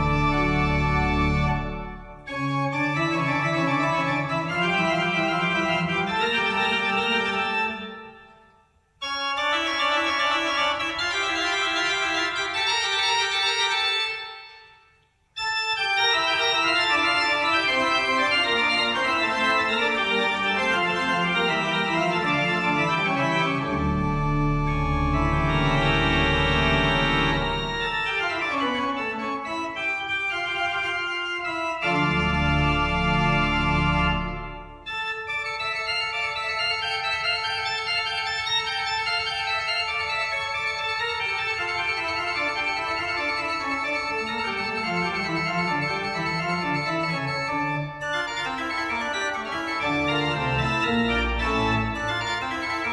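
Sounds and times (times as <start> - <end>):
deep organ pedal bass notes: 0.0 - 8.0, 16.0 - 35.4, 43.0 - 52.9
pipe organ playing: 0.0 - 52.9.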